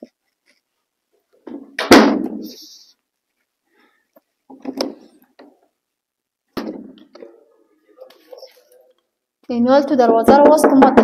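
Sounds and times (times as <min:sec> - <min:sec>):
knocking on wooden door: 0:10.0 - 0:11.0.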